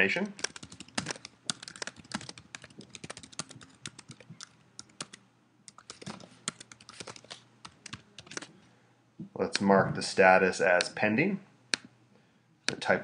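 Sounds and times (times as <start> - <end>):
computer keyboard typing: 0.4 - 8.5.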